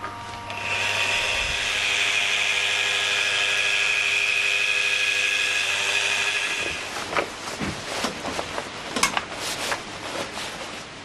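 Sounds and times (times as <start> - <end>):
power drill mixer whining: 0.0 - 7.0.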